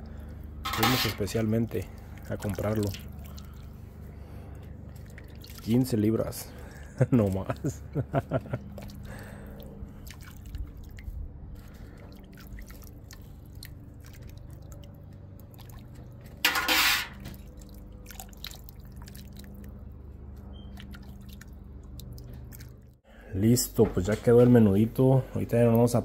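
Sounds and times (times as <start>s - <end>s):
steady low hum: 0.0s - 26.0s
liquid dripping and splashing: 0.1s - 23.0s.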